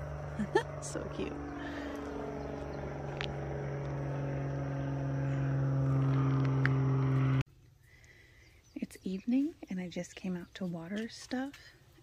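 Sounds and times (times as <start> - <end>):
low machine hum: 0.0 - 7.5.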